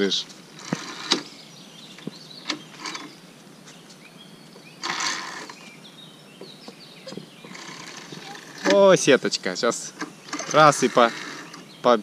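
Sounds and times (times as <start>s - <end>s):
carabiners clicking: 4.8s - 5.6s, 7.4s - 9.0s, 9.9s - 11.7s
pulley sliding along steel cable: 4.8s - 5.6s, 7.5s - 9.0s, 10.3s - 11.7s.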